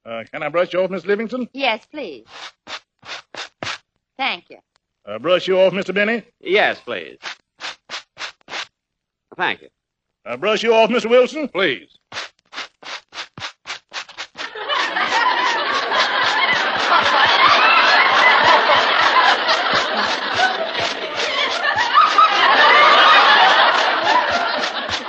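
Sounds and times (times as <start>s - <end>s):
clothes being brushed: 2.2s - 3.8s, 7.1s - 8.7s, 12.1s - 25.0s
studio audience laughing: 14.4s - 25.0s.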